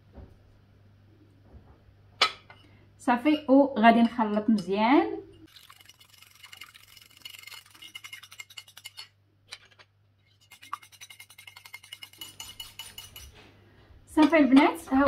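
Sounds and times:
wire whisk beating in bowl: 5.5s - 9.1s, 10.4s - 13.4s.

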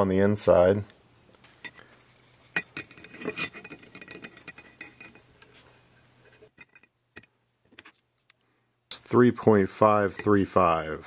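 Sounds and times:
metal dividers clicking and scraping: 1.6s - 8.1s.

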